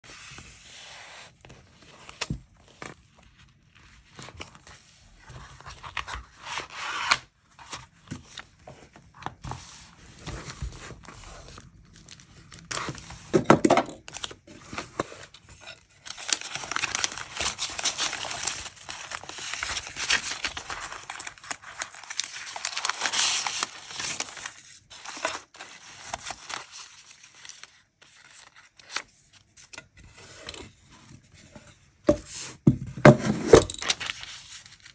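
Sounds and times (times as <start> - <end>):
paper rustling and crinkling: 0.1 - 13.4, 14.0 - 29.7, 33.7 - 34.9.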